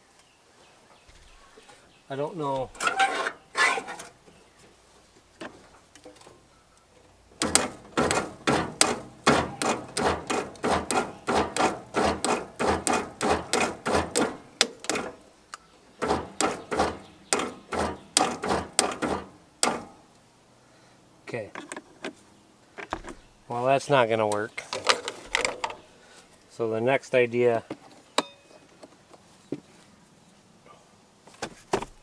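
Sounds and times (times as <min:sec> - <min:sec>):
hand tool metallic strokes: 0:02.7 - 0:04.2, 0:07.4 - 0:15.3, 0:16.0 - 0:20.0.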